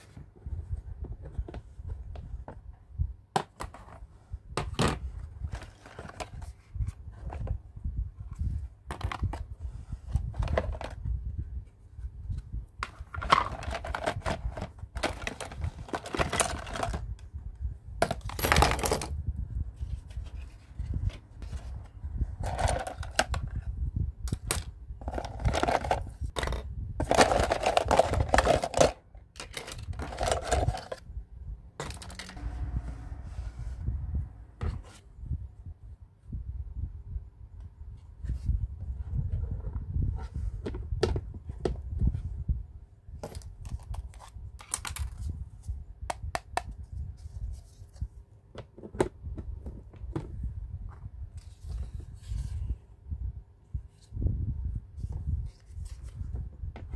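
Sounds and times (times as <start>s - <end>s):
plastic toy pieces clattering: 12.9s - 17.2s, 18.0s - 19.2s, 22.4s - 23.4s, 24.4s - 31.0s, 31.8s - 32.4s.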